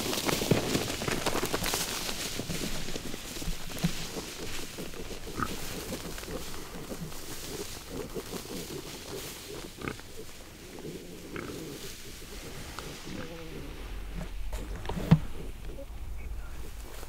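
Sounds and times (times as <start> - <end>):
wild hog grunting: 4.1 - 16.8.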